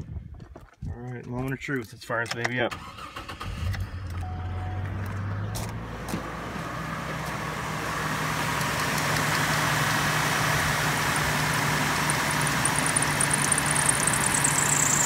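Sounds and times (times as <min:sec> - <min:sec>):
car engine idling: 0:06.8 - 0:15.0
high-pitched belt squeal: 0:12.0 - 0:15.0.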